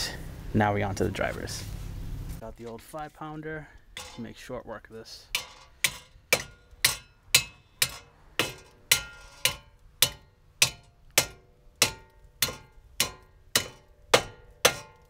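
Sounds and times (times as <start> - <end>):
sledgehammer striking metal: 4.0 - 4.3, 5.3 - 15.0.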